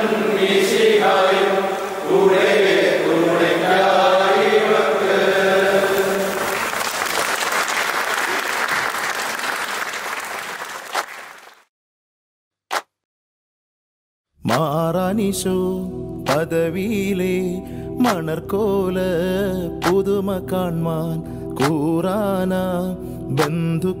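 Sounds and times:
group singing in unison: 0:00.0 - 0:06.6
applause: 0:05.9 - 0:11.7.

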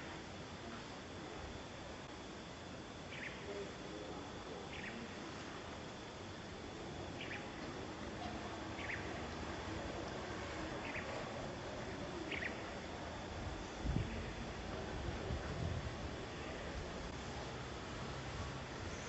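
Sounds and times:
outdoor background hiss: 0:00.0 - 0:19.0
faint high chirps: 0:03.1 - 0:03.7, 0:04.7 - 0:05.3, 0:07.1 - 0:07.6, 0:08.7 - 0:09.2, 0:12.2 - 0:12.8.

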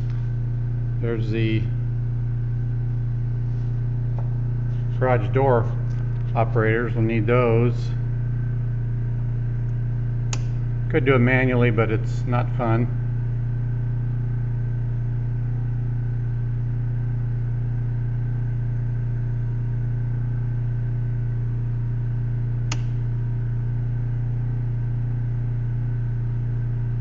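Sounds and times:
generator engine running: 0:00.0 - 0:27.0
circuit breaker click: 0:09.6 - 0:10.7, 0:22.6 - 0:23.1.

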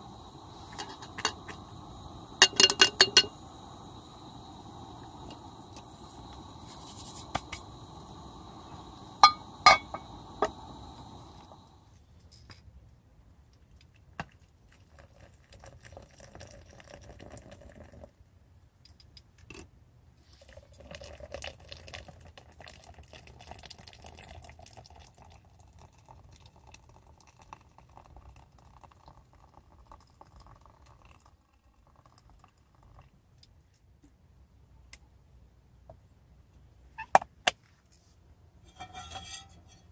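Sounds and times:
hot water pouring from kettle: 0:00.0 - 0:11.9, 0:14.7 - 0:18.0, 0:20.4 - 0:33.0.

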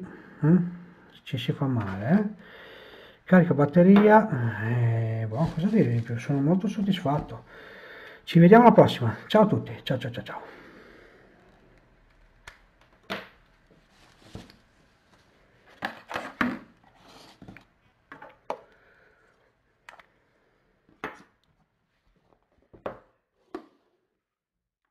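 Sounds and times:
cardboard box rustling: 0:05.3 - 0:06.3.

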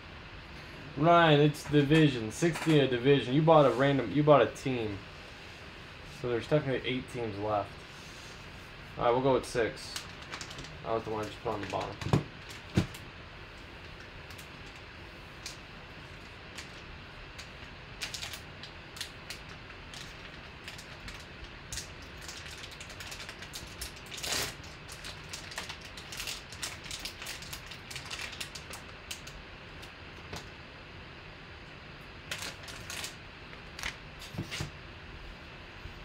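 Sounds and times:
foil wrapper crinkling: 0:09.8 - 0:13.1, 0:13.8 - 0:30.5, 0:32.3 - 0:34.7
wrapper tearing rustle: 0:09.9 - 0:13.1, 0:13.8 - 0:30.5, 0:32.3 - 0:34.7.

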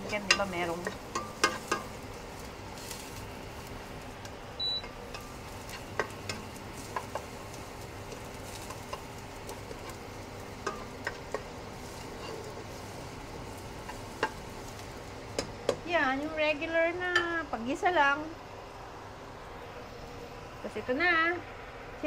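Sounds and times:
spatula tapping and scraping pot: 0:00.0 - 0:02.0, 0:04.8 - 0:07.4, 0:08.0 - 0:12.8, 0:13.8 - 0:15.8
sizzling in oil: 0:00.0 - 0:18.7.

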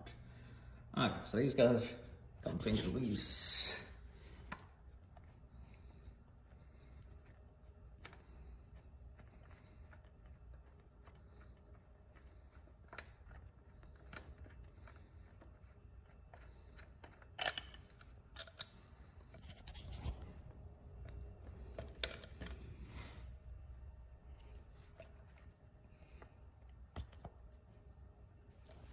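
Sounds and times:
metallic clicks and scrapes: 0:09.3 - 0:23.2.

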